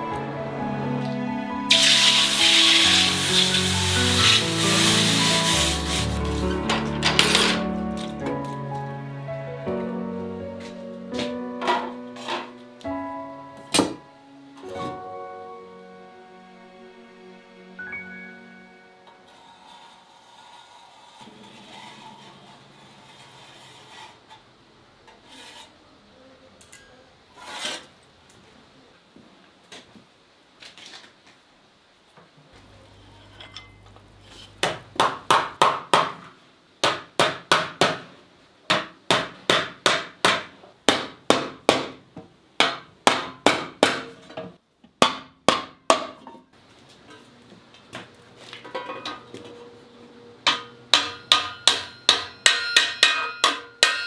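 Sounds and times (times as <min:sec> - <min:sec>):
hammer beating copper: 0:42.6 - 0:44.1, 0:50.4 - 0:54.0.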